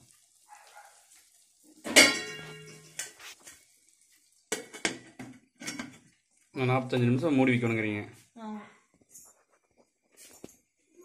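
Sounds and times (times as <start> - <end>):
lid clinking and knocking: 1.8 - 3.1, 4.5 - 6.0
metal lid clanging onto pot: 1.8 - 3.1, 4.5 - 6.0.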